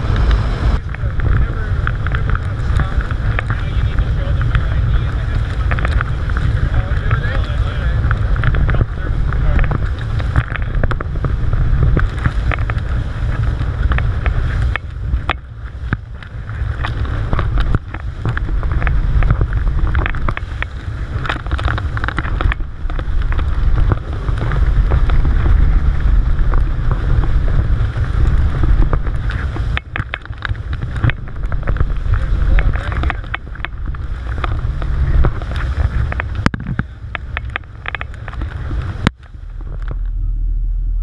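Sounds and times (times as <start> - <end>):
water splashing along hull: 0.0 - 41.0
wind buffeting microphone: 0.0 - 41.0.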